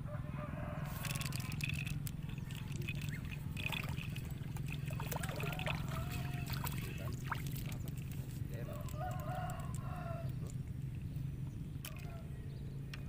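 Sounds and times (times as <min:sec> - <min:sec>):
fish splashing at water surface: 0:01.0 - 0:08.2.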